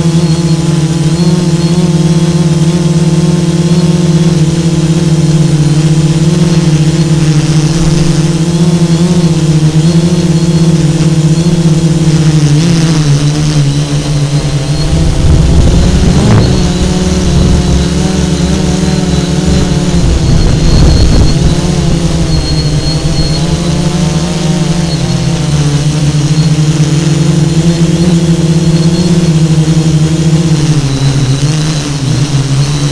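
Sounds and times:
drone propellers humming: 0.0s - 32.9s
low rumble: 13.9s - 25.8s.

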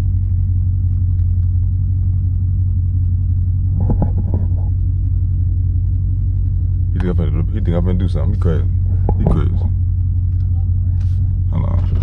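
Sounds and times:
deep rumble in car cabin: 0.0s - 12.0s
faint voice: 10.5s - 12.0s.

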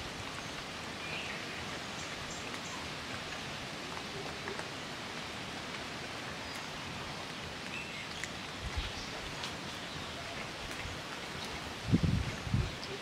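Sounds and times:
outdoor background hiss: 0.0s - 13.0s
kittens eating clicks: 5.6s - 9.7s.

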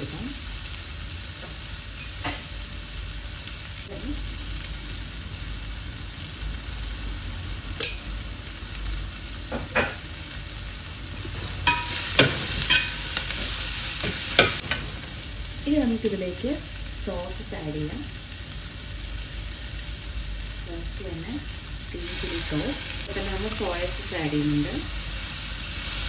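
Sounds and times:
vegetables sizzling in hot oil: 0.0s - 26.0s.

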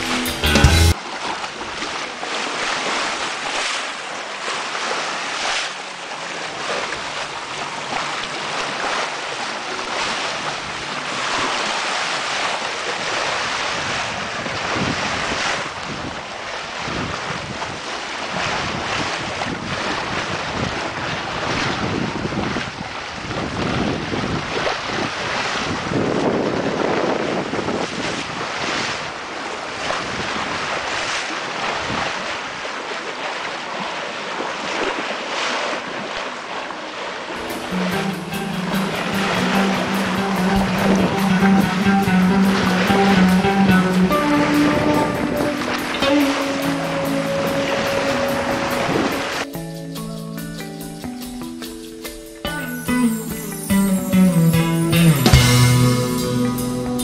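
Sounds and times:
hull rushing through water: 0.9s - 49.5s
bow wave splashing and hissing: 1.1s - 14.2s, 37.4s - 49.5s
wind buffeting microphone: 13.5s - 29.2s, 40.5s - 49.4s.

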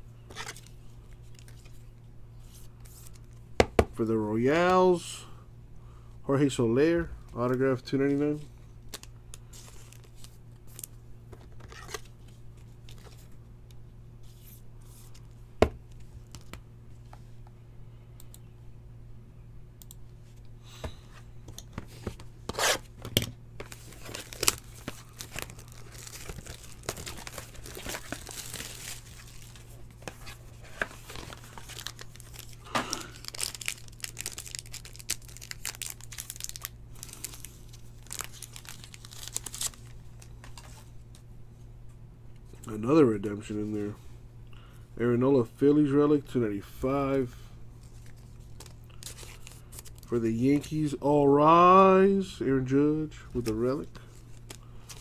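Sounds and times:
faint low hum: 0.0s - 55.0s
cards tapping and rustling: 20.8s - 36.6s
foil wrapper crinkling and tearing: 23.6s - 40.4s.

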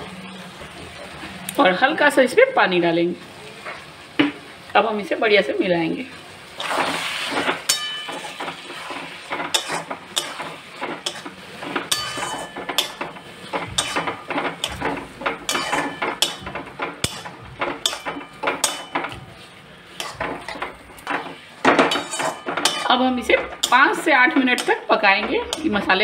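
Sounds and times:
spatula scraping and knocking metal pan: 6.6s - 26.0s.

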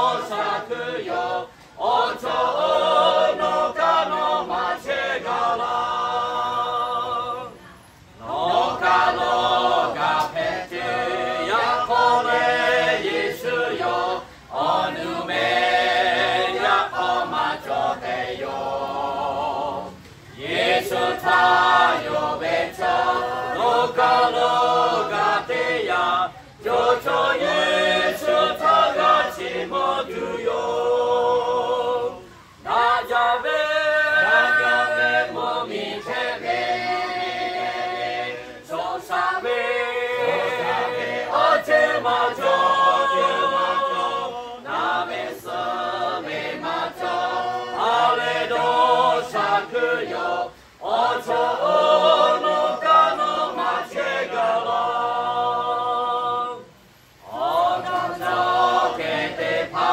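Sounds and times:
mixed choir singing unaccompanied: 0.0s - 59.9s.

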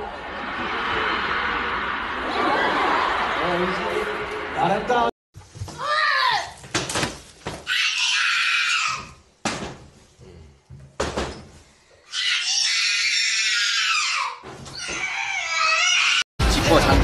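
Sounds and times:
high-pitched screams: 7.7s - 9.2s, 12.1s - 16.2s.

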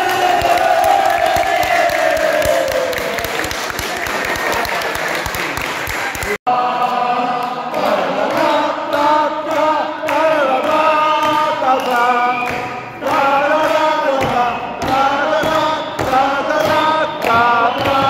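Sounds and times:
hands clapping in time: 0.0s - 6.4s, 7.4s - 18.0s
group singing in chorus: 6.5s - 18.0s.

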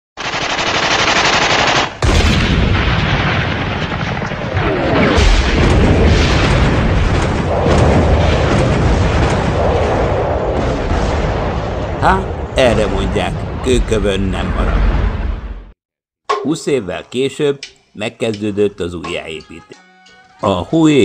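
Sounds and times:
automatic weapon fire: 0.2s - 11.6s
explosions: 2.0s - 15.8s
heavy low rumble: 5.6s - 15.7s.

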